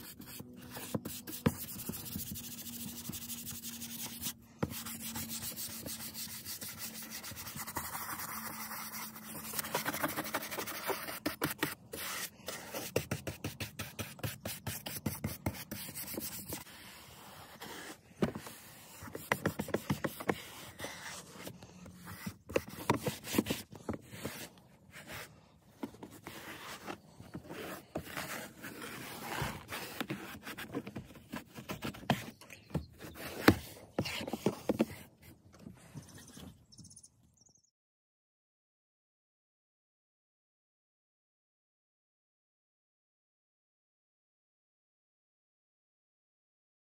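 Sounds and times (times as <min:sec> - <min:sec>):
brush scrubbing plastic trim: 0:00.0 - 0:16.7.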